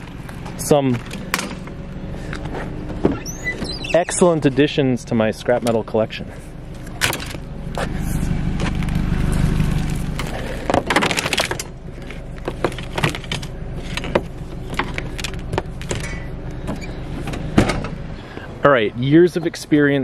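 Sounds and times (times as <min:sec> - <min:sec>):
vehicle engine hum: 0:00.0 - 0:20.0
extension cord rustling and scraping: 0:06.4 - 0:17.4.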